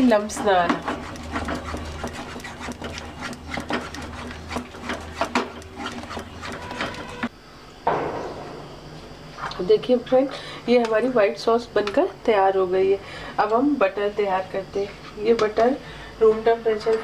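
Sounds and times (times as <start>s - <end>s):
wooden spatula scraping a pan: 0.0s - 7.3s.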